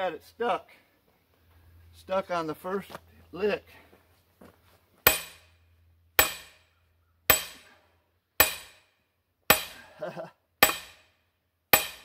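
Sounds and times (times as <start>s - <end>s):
sledgehammer clanking on steel: 5.1s - 5.6s.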